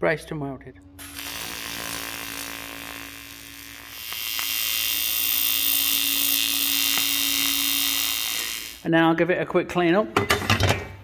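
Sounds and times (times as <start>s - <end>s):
electric arc welding buzz: 0.8s - 8.9s
hissing crackle of welding arc: 1.0s - 8.9s.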